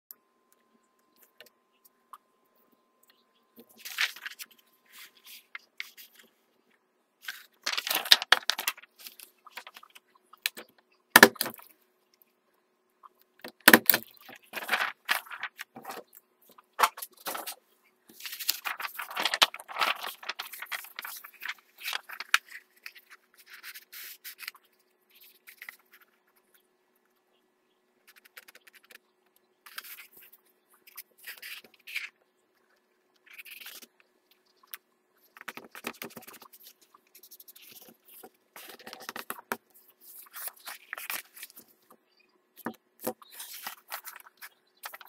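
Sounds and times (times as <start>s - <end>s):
paper rustling and folding: 3.6s - 6.3s, 7.2s - 10.0s, 14.2s - 16.1s, 16.8s - 26.4s, 35.4s - 41.9s, 42.6s - 45.0s.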